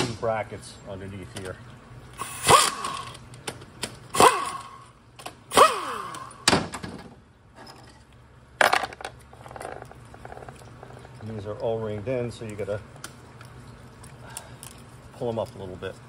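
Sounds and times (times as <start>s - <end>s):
power driver whining: 2.2s - 6.5s.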